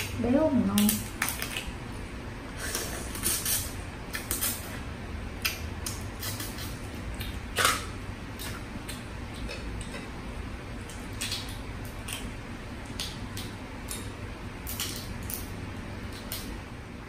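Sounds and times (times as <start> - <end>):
sucking and chewing: 2.5 - 4.8, 5.4 - 16.5.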